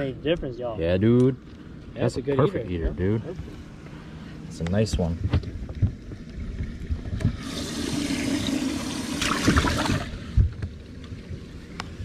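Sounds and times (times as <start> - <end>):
water pouring: 7.3 - 10.3.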